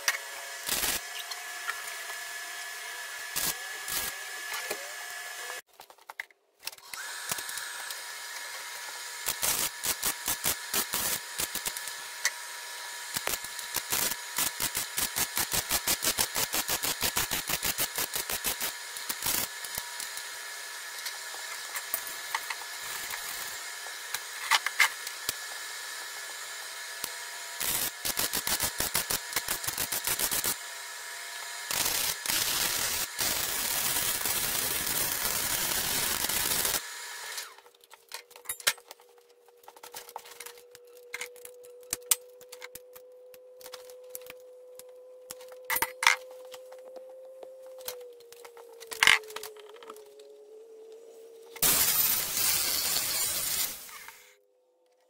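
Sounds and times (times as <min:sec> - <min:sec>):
welding arc crackling and sizzling: 0:00.0 - 0:05.7, 0:06.9 - 0:37.6, 0:51.6 - 0:54.4
tools clicking and clattering: 0:37.6 - 0:43.0.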